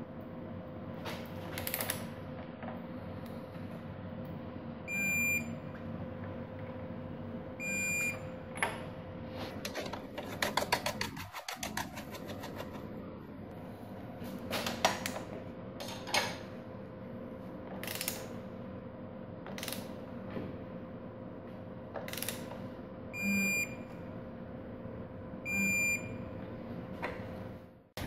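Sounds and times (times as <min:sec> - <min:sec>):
ratchet clicks: 0:22.1 - 0:22.4.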